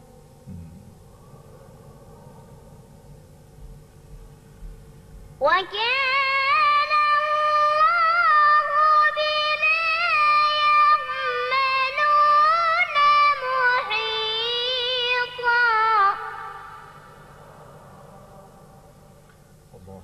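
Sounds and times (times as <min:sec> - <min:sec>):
child reciting melodic chant: 0:05.4 - 0:16.5.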